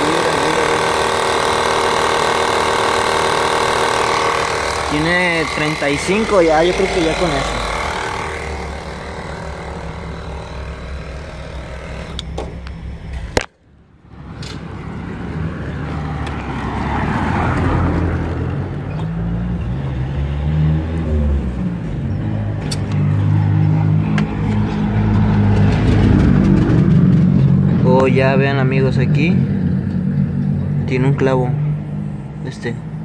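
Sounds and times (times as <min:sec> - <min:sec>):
motor humming: 0:00.0 - 0:14.9.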